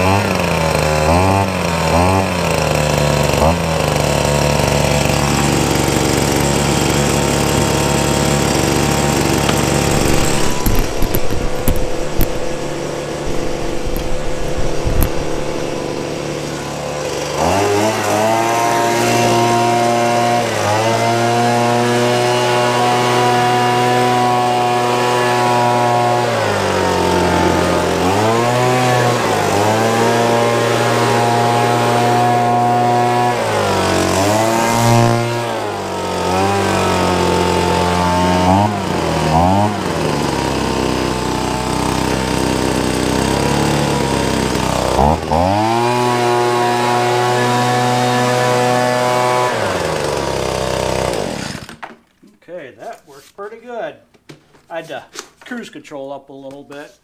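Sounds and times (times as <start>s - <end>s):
leaf blower engine revving: 0.0s - 52.0s
gusty noise: 9.8s - 16.8s.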